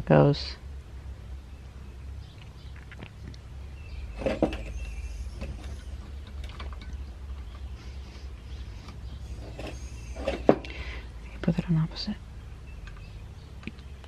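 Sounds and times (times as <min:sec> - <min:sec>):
metal clatter: 0:04.1 - 0:07.5
small metal parts clicking and scraping: 0:04.2 - 0:07.7, 0:08.9 - 0:10.7.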